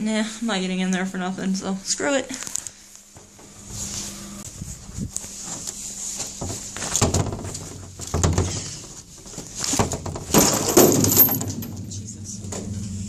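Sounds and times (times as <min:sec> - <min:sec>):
crunching and rustling: 0:03.7 - 0:11.8.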